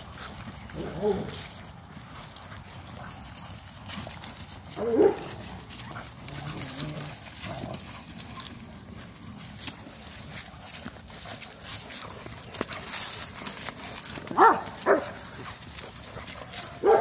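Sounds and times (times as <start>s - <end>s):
puppies growling: 0.0s - 17.0s
scuffling and rustling: 0.0s - 17.0s
puppy barking: 4.8s - 6.8s, 14.3s - 15.3s, 16.5s - 17.0s.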